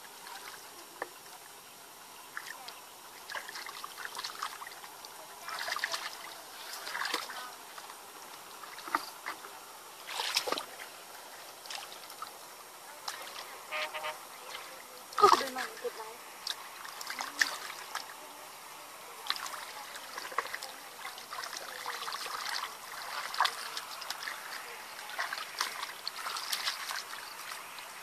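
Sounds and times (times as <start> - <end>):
hands splashing in muddy water: 3.3 - 7.4, 10.0 - 10.8, 19.2 - 27.9.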